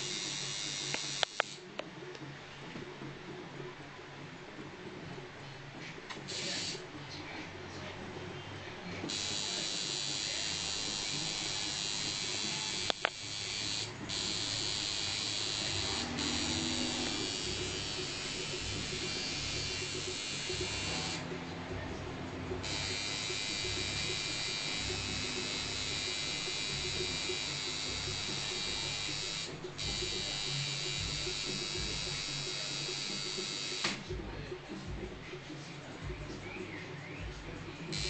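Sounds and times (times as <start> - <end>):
tattoo machine buzzing: 0.0 - 1.6, 6.3 - 6.8, 9.1 - 21.3, 22.6 - 34.1.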